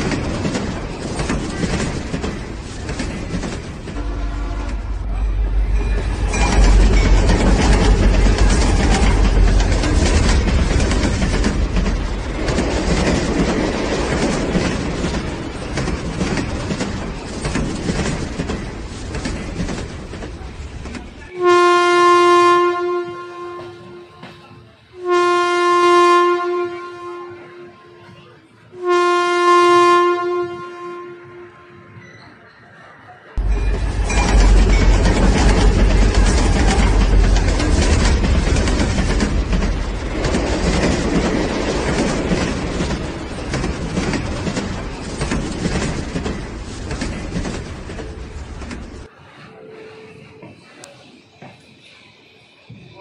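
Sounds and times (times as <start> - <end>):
clickety-clack over rail joints: 0.0 - 21.4, 33.4 - 53.0
train wheels on rails: 0.0 - 25.5, 29.7 - 53.0
train horn blasts: 3.9 - 10.5, 21.3 - 32.0.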